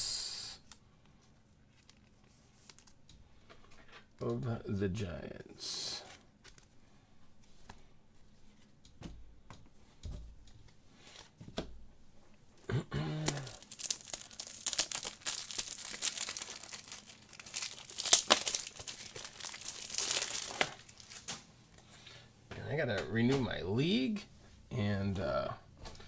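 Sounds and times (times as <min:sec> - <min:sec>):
wrapper crinkling and tearing: 0:13.2 - 0:21.4.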